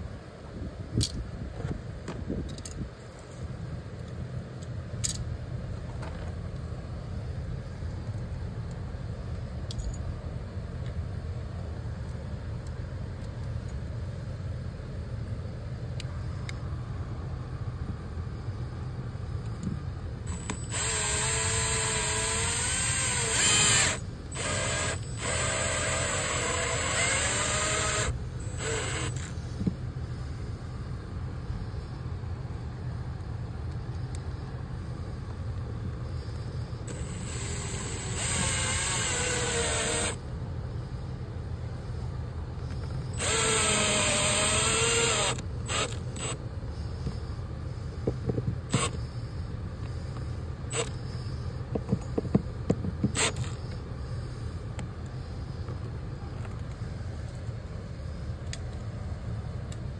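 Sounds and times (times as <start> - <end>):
steady low hum: 0.0 - 59.9
power drill driving screws: 20.3 - 29.3, 36.9 - 40.2, 43.1 - 46.4, 48.7 - 49.0, 53.1 - 53.6.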